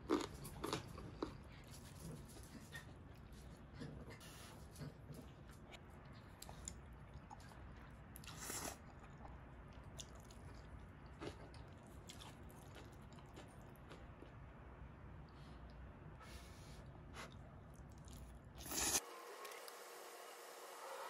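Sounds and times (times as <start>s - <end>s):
person chewing noodles: 0.0s - 2.8s, 4.7s - 14.5s, 17.2s - 19.0s.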